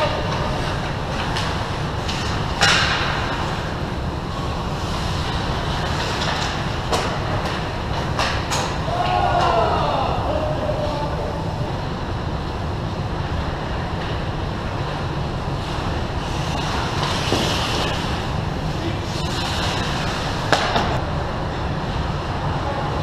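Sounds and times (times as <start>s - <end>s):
skates scraping ice: 0.0s - 9.5s, 13.6s - 21.0s
steady low rumble: 0.0s - 23.0s.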